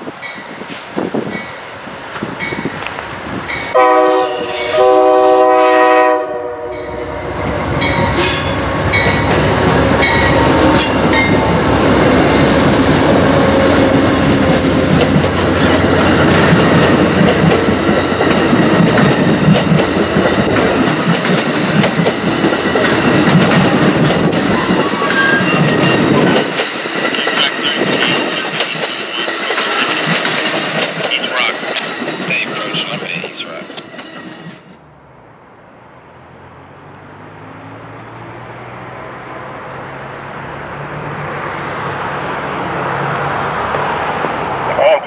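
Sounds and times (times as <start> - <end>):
train wheels rumbling: 0.0 - 44.9
locomotive horn blasts: 3.7 - 8.7
train cars clacking over rail joints: 14.3 - 34.8.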